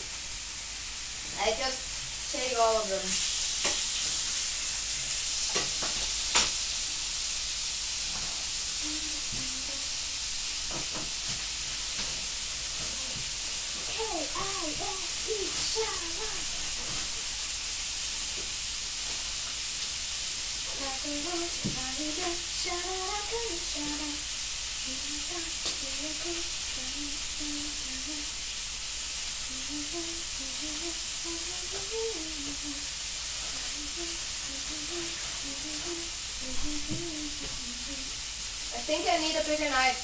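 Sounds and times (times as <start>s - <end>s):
food frying in a pan: 0.0s - 40.0s
person humming: 8.7s - 10.0s, 12.7s - 17.1s, 20.7s - 24.2s, 24.8s - 28.4s, 29.4s - 38.2s.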